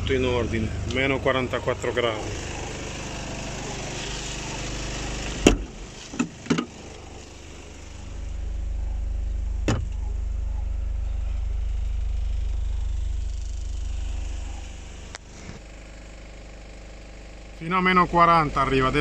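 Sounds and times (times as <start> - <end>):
van machinery hum: 0.0 - 19.0
van door clunk: 5.1 - 7.0, 9.6 - 10.1.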